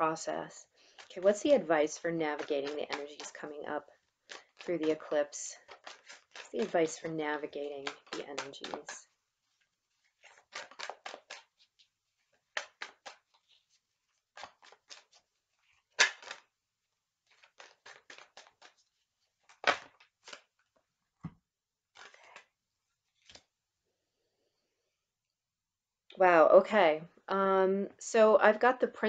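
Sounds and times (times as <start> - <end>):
cards being shuffled: 2.4 - 3.6, 4.2 - 16.5, 17.3 - 20.8, 21.9 - 22.5, 23.1 - 23.5
sharp card slaps: 16.0 - 16.4.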